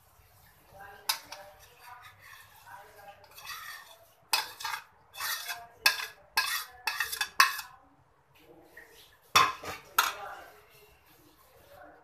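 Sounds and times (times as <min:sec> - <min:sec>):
metal spoon scraping ceramic dishes: 0:01.0 - 0:07.8.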